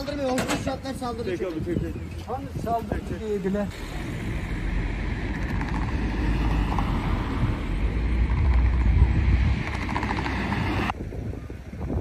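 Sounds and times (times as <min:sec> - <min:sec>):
faint street noise: 0:00.0 - 0:12.0
wind buffeting microphone: 0:00.0 - 0:12.0.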